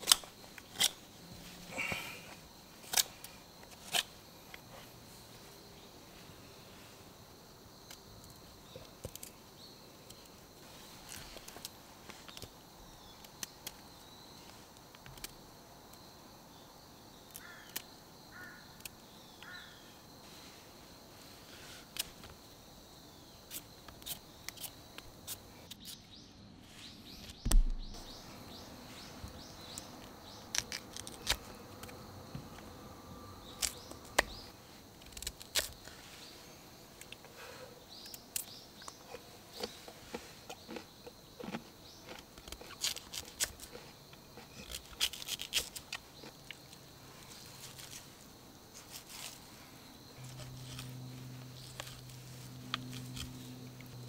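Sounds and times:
faint birds chirping: 0.3 - 45.0, 45.8 - 54.0
heavy thump: 27.4 - 28.0.

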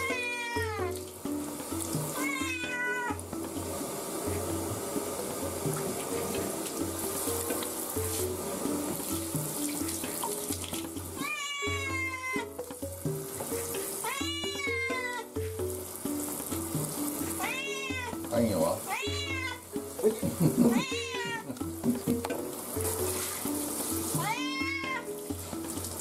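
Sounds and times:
cat yowling: 0.0 - 1.1, 2.1 - 3.2, 11.2 - 12.6, 14.0 - 15.4, 17.3 - 18.2, 18.8 - 19.6, 20.5 - 21.6, 24.2 - 25.2
shower spray hissing: 0.0 - 26.0.

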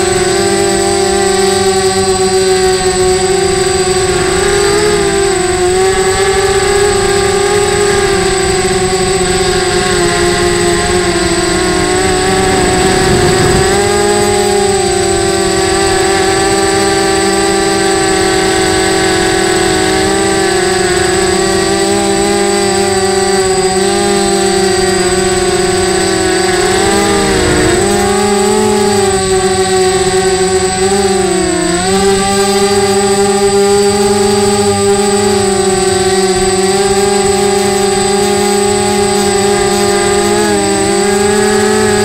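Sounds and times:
quadcopter motors buzzing: 0.0 - 42.0.

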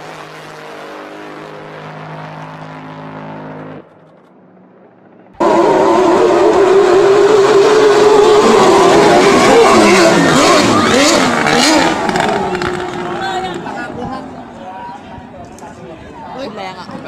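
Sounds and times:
engine drone: 0.0 - 15.9
speedboat engine whine passing: 5.4 - 15.2.

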